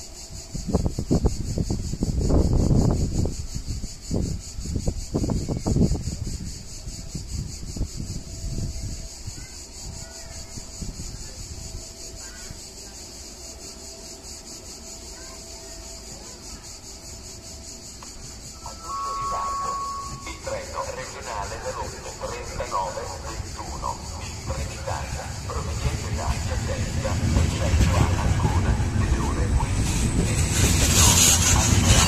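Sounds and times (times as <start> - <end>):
cicadas buzzing: 0.0 - 32.0
wind buffeting microphone: 0.2 - 12.8, 19.9 - 32.0
faint thin whine: 18.0 - 22.6.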